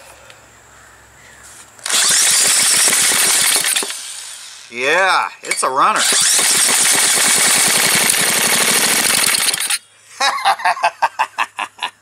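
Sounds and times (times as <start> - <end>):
small engine crackling: 1.8 - 4.8, 5.5 - 9.8.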